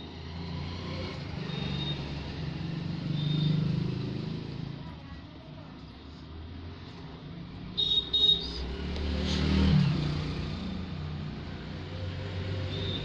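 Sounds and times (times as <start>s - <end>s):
traffic rumble: 0.0s - 13.0s
vehicle passing: 6.4s - 13.0s.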